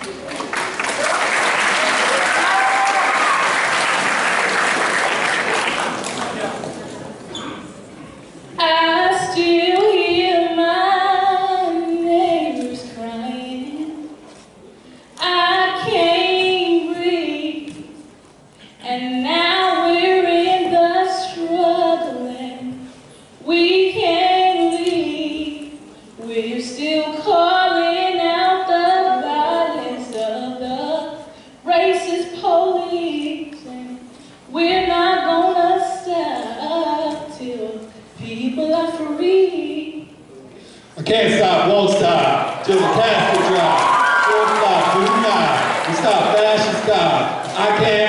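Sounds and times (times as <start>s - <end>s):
woman singing unaccompanied: 8.6s - 14.2s, 15.2s - 18.0s, 18.8s - 40.2s
short breaths: 40.5s - 41.0s.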